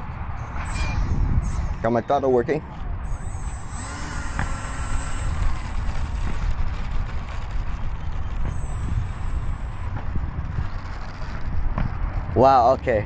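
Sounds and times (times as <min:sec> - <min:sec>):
steady low rumble: 0:00.0 - 0:12.6
electric fan high whine: 0:00.0 - 0:13.0.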